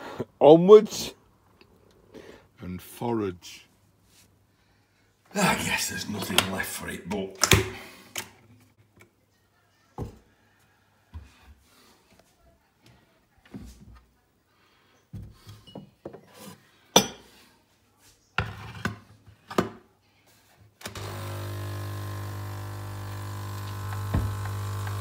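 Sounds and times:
coffee machine pump humming: 20.9s - 25.0s.

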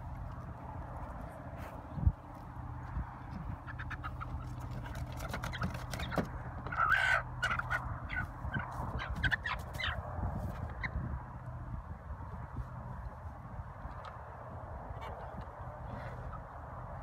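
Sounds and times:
steady low hum: 0.0s - 17.0s
chickens clucking: 2.8s - 11.1s, 14.8s - 17.0s.

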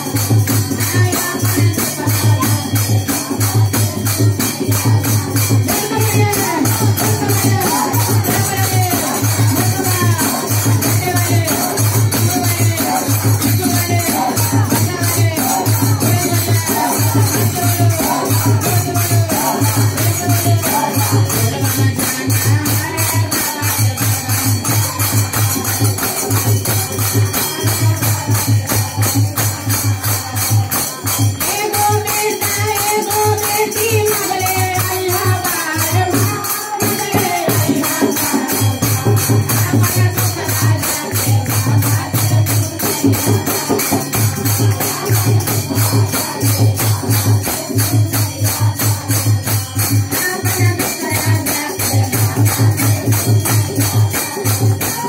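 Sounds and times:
hand cymbals clashing: 0.0s - 55.0s.

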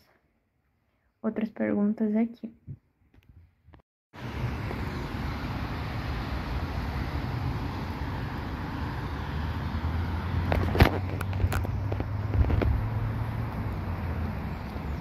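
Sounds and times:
vehicle and road noise: 4.2s - 15.0s.

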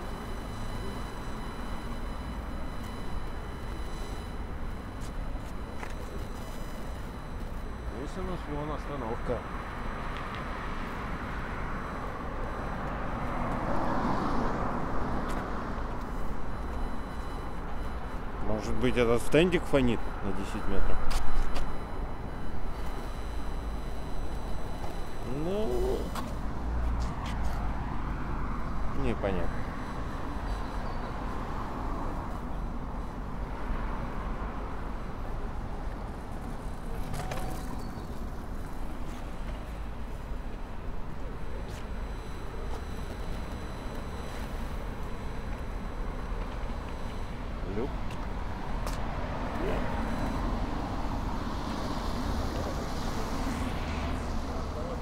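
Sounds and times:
faint high tones: 0.0s - 13.6s, 15.8s - 26.8s
radio interference hum and hiss: 0.0s - 14.1s, 14.7s - 55.0s
street traffic: 0.0s - 55.0s.

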